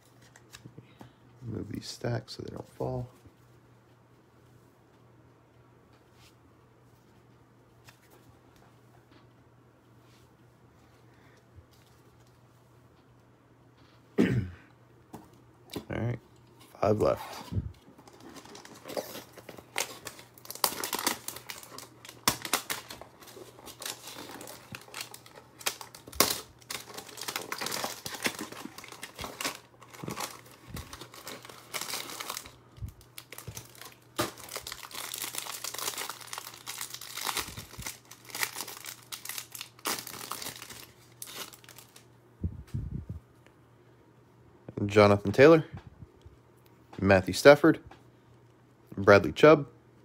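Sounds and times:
plastic wrap crinkling: 18.0 - 42.1.

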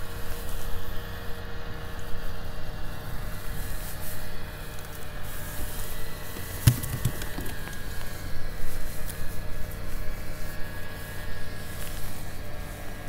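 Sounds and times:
soft thumps: 6.4 - 8.0
sharp knock: 6.6 - 7.8.

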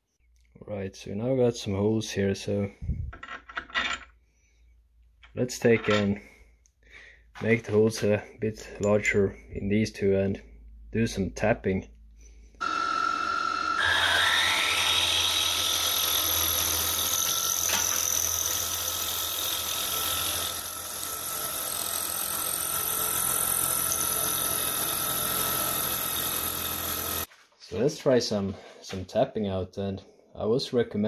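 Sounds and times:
machine motor whining: 12.6 - 15.7
drill bit cutting metal: 12.6 - 27.3.

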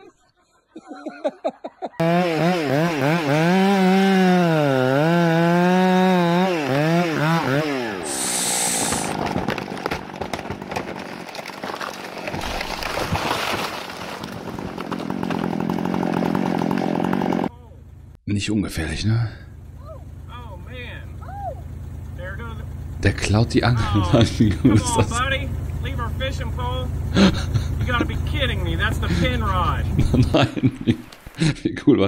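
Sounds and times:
chainsaw cutting wood: 2.0 - 17.5, 29.0 - 31.4
tree cracking and crashing down: 8.6 - 17.5.

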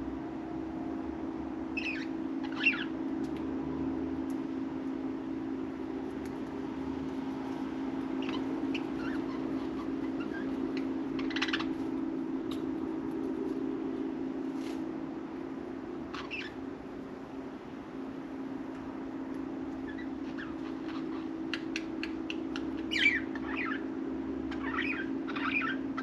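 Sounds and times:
steady low hum: 0.0 - 26.0
budgerigars chirping: 1.8 - 2.9, 8.2 - 11.8, 16.1 - 16.6, 22.8 - 23.8, 24.5 - 26.0.

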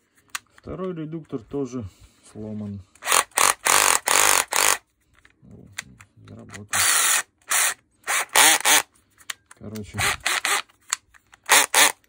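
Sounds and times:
cordless drill motor spinning: 3.0 - 4.8, 6.7 - 8.9, 10.0 - 10.7, 11.4 - 12.0.

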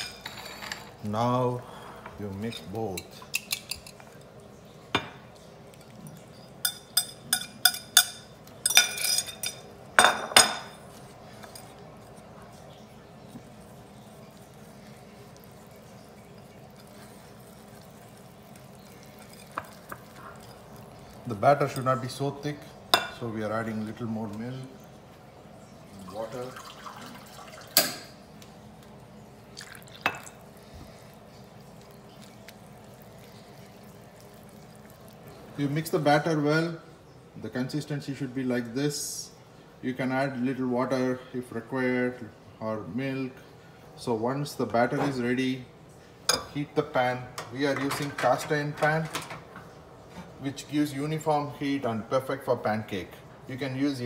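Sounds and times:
kitchenware clinking: 0.0 - 1.2, 2.0 - 4.2, 4.9 - 12.1, 15.6 - 24.1, 26.6 - 28.2, 29.6 - 30.6, 46.3 - 50.4
wire whisk clinking on ceramic bowl: 5.8 - 10.8, 18.5 - 20.9
liquid pouring into batter: 10.8 - 23.0, 24.2 - 36.3.

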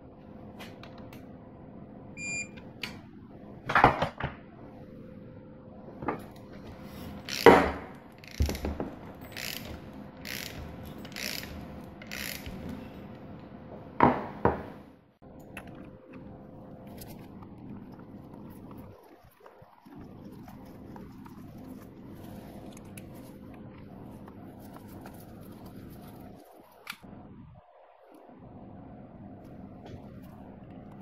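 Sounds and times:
ratchet wrench strokes: 7.3 - 7.5, 9.3 - 12.6.

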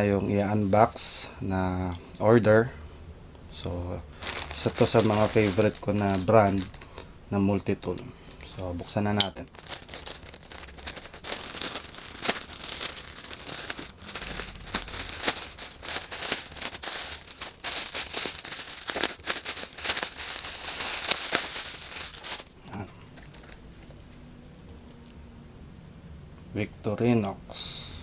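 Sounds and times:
plastic packaging crinkling: 4.1 - 7.1, 9.1 - 24.2.

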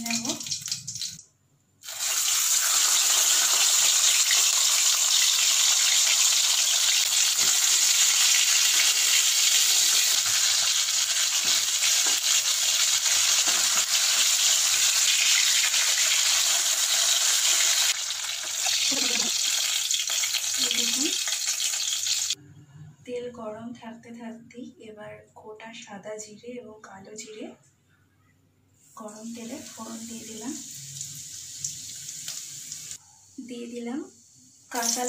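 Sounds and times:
fish frying in oil sizzling: 1.8 - 22.4, 29.6 - 33.0, 34.7 - 35.0.

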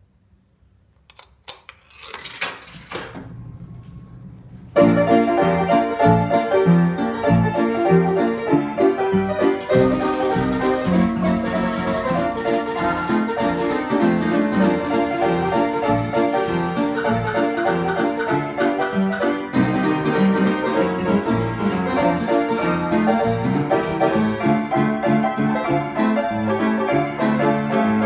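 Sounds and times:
low running noise: 2.7 - 5.1
piano playing lively tune: 4.8 - 28.0
bright high struck notes: 9.6 - 19.7.

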